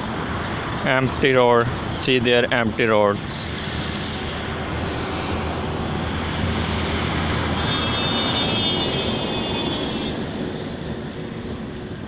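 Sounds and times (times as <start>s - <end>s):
high whine: 0.0s - 12.0s
vehicle passing: 3.3s - 11.7s.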